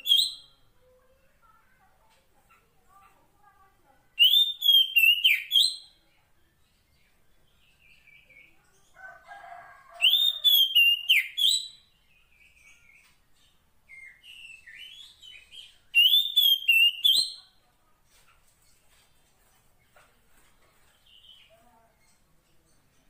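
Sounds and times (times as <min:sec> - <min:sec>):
bird sharp whistled notes: 0:16.0 - 0:17.4.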